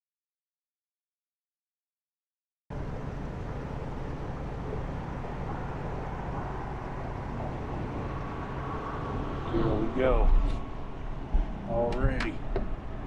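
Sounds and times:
outdoor background noise: 2.7 - 13.0.

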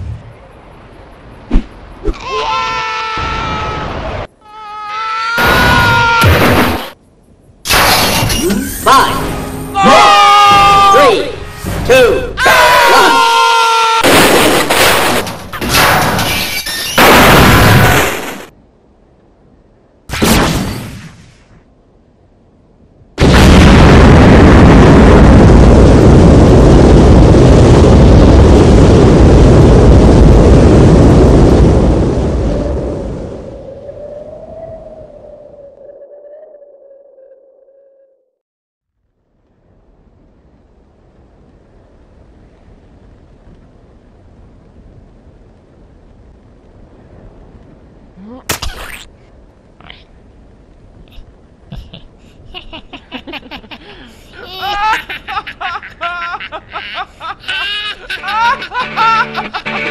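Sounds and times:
explosion blast: 5.4 - 7.0, 14.0 - 16.4, 17.0 - 18.5, 23.2 - 33.2
low steady rumbling haze: 20.9 - 37.8, 39.0 - 48.5.

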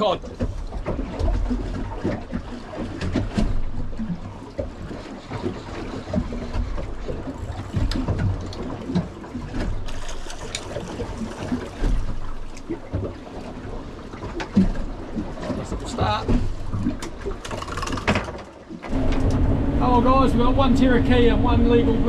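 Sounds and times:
water lapping against hull: 0.0 - 22.0
low rumble: 18.9 - 22.0.

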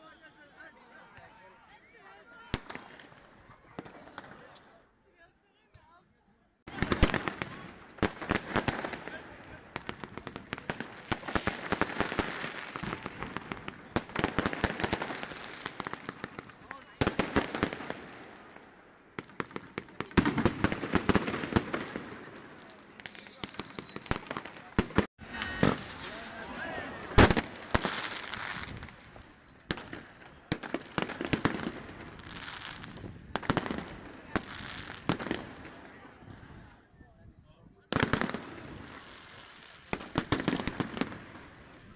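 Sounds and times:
fireworks and firecrackers banging: 2.3 - 4.8, 6.7 - 36.8, 37.9 - 41.9.

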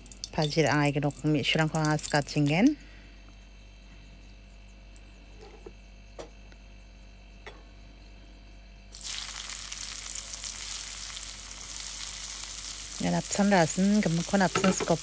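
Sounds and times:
steady low hum: 0.0 - 15.0
vegetables sizzling in hot oil: 8.9 - 15.0.

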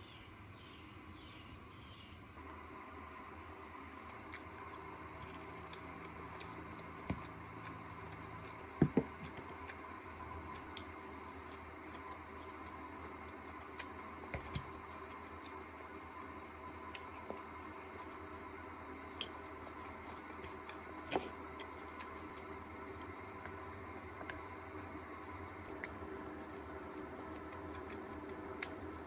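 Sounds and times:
faint steady hum: 0.0 - 29.0
chewing crisp salad: 4.3 - 15.7, 16.8 - 23.6, 25.7 - 29.0.

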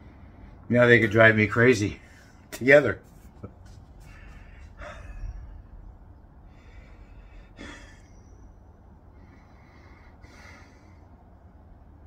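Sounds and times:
low steady hum: 0.0 - 12.0
man breathing through nose: 4.0 - 11.3.

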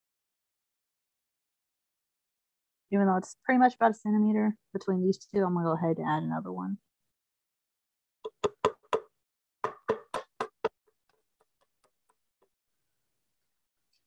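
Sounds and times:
hammer striking nail into wood: 9.7 - 10.7.

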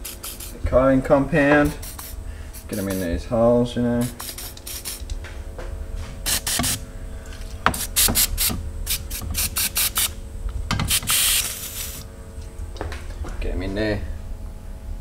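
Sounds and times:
aerosol can spraying: 0.0 - 0.6, 1.7 - 3.1, 4.0 - 5.1, 6.3 - 6.8, 7.7 - 10.2, 10.8 - 12.0.

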